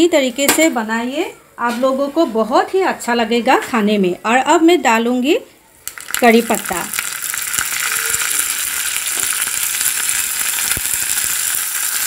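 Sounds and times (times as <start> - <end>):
leaves sizzling in hot fat: 5.8 - 12.0.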